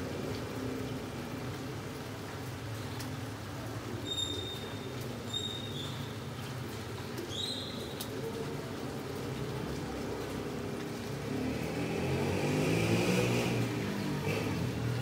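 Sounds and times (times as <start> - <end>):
steady rain falling: 0.0 - 15.0
motor vehicle passing: 10.6 - 15.0.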